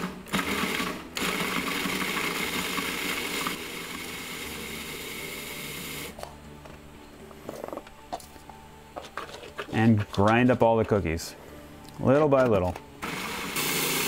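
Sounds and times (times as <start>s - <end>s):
food processor grinding cookies: 0.0s - 6.2s, 13.0s - 14.0s.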